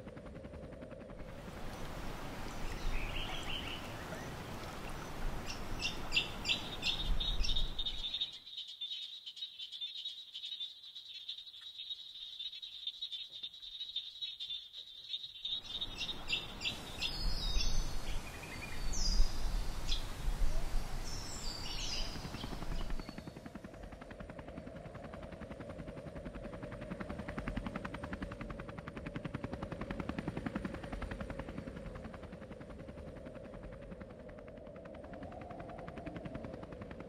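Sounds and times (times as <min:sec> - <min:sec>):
helicopter engine whine: 0:00.0 - 0:04.4, 0:15.6 - 0:20.2, 0:21.0 - 0:37.0
helicopter rotor chopping: 0:00.0 - 0:04.4, 0:21.6 - 0:37.0
birds chirping: 0:01.3 - 0:23.4.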